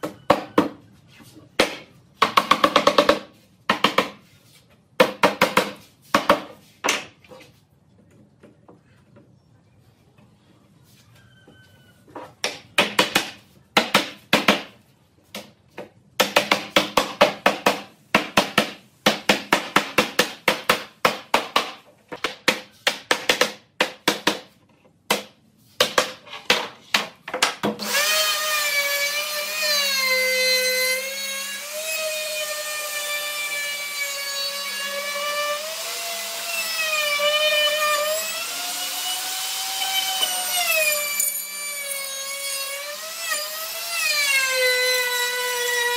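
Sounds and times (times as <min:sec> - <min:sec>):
hammer striking wood: 0:01.6 - 0:04.2, 0:12.4 - 0:27.8.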